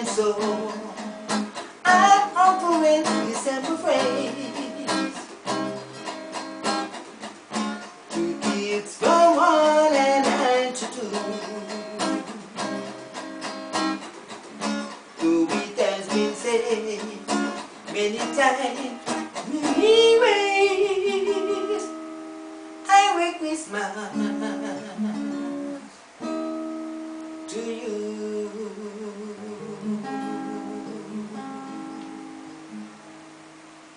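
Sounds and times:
man singing: 0.0 - 5.2, 8.1 - 12.6, 15.2 - 22.0, 22.9 - 25.3, 27.5 - 31.8
acoustic guitar reggae strumming: 0.0 - 33.9.

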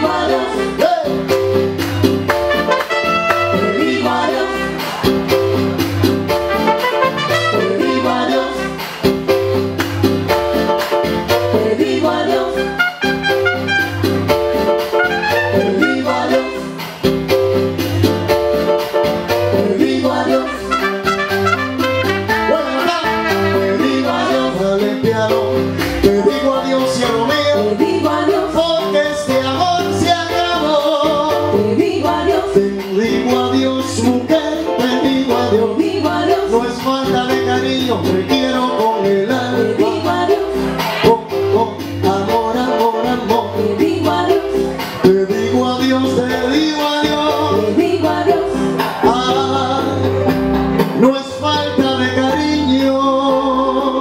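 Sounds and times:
trumpet melody: 0.0 - 1.2, 2.3 - 5.4, 6.3 - 9.2, 12.4 - 17.0, 20.2 - 25.0
repeating bass line: 0.0 - 54.0.

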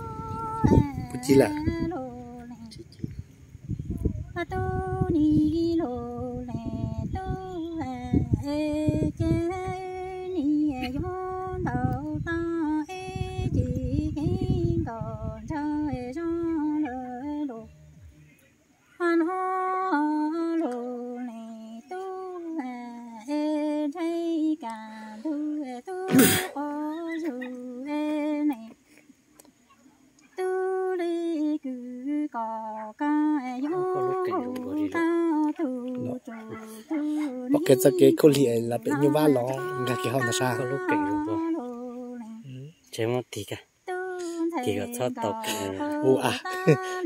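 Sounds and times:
woman chanting: 0.0 - 3.0, 4.0 - 18.0, 19.0 - 28.8, 30.3 - 42.6, 43.7 - 47.0
wind rumbling on microphone: 0.0 - 18.3.

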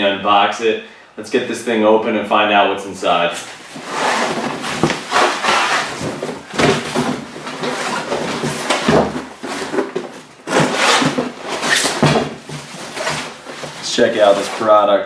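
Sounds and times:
box scraping on wooden table: 3.7 - 14.8
cardboard flaps rustling: 3.7 - 14.8.

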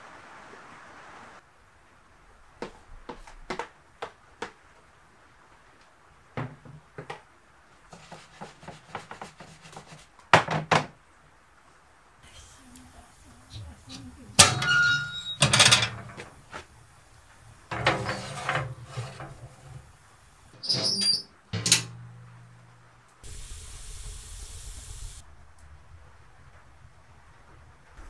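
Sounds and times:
metal clanks and scrapes ringing: 13.9 - 16.7, 17.6 - 20.0, 20.6 - 22.8.

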